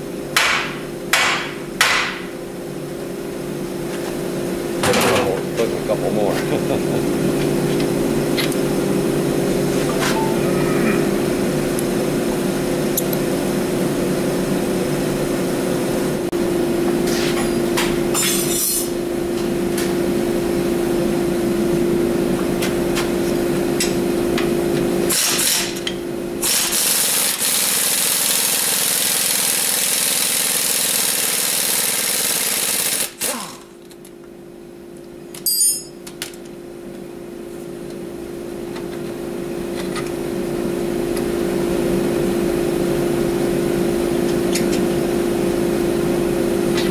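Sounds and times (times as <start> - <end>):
steady machine drone: 0.0 - 18.2, 18.9 - 35.0, 38.1 - 46.9
pneumatic impact wrench rattling: 25.1 - 33.8.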